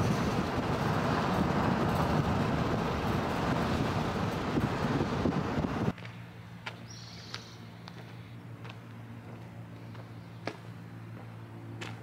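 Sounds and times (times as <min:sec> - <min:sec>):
heavy low rumble: 0:00.0 - 0:05.9
wind and road noise: 0:00.0 - 0:12.0.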